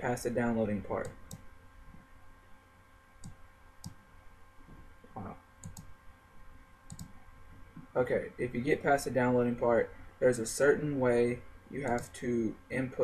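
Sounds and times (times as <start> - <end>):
faint steady hum: 0.0 - 13.0
computer mouse clicks: 3.2 - 4.0, 5.6 - 5.9, 6.9 - 7.2, 11.8 - 12.1.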